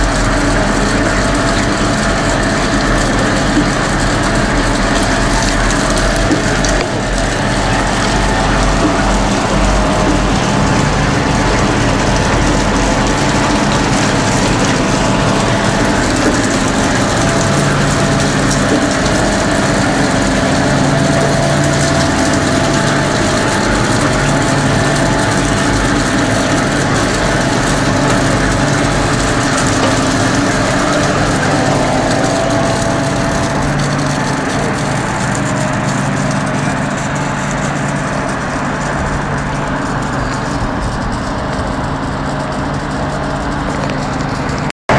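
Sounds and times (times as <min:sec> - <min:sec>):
ice machine humming: 0:00.0 - 0:44.9.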